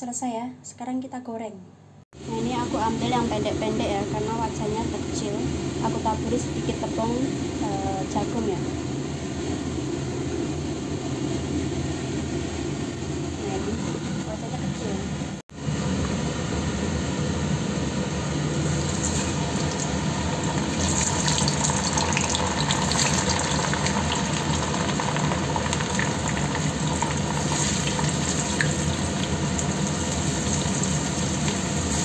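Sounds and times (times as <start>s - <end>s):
steady low hum: 2.2s - 32.0s
hot oil sizzling and crackling: 18.4s - 32.0s.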